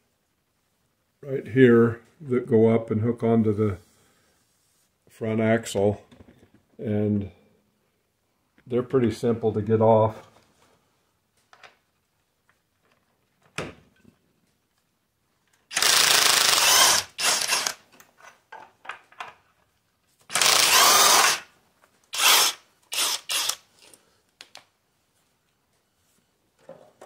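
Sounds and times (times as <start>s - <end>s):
small clicks of tool and parts: 23.4s - 24.7s.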